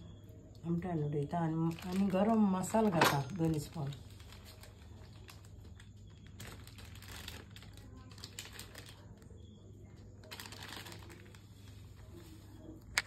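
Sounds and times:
plastic packet crinkling: 1.4 - 9.5, 10.2 - 11.9.

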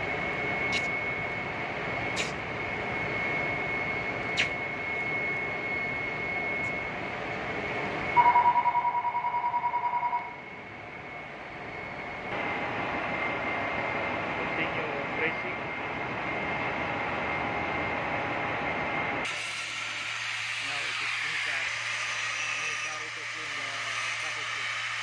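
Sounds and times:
loud high beep pulsing: 2.0 - 7.0, 8.0 - 11.1
torch flame hissing: 2.1 - 2.5, 19.2 - 25.0
sharp clicks: 2.2 - 2.4.

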